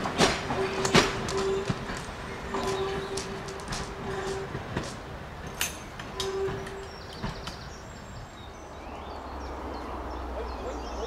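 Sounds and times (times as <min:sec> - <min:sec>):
train wheels clicking over rail joints: 0:00.0 - 0:07.9
low train rumble: 0:00.0 - 0:11.0
birds chirping: 0:00.5 - 0:04.7, 0:05.9 - 0:11.0.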